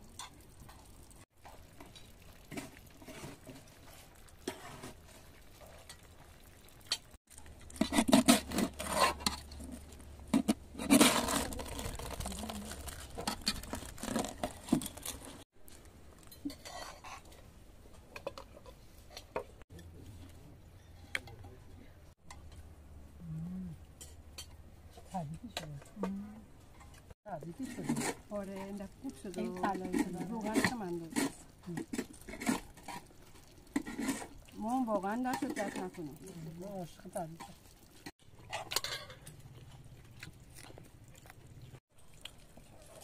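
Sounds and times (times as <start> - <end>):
metal scraping in pot: 0.1 - 6.2, 6.8 - 15.4, 16.2 - 21.6, 23.9 - 39.9
rice crust crunching: 6.6 - 16.6
spoons clinking on plates: 38.5 - 39.3.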